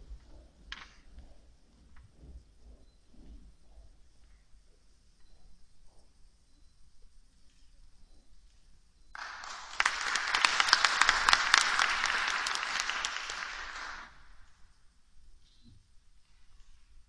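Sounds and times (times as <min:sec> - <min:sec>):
audience applauding: 0:09.2 - 0:14.4.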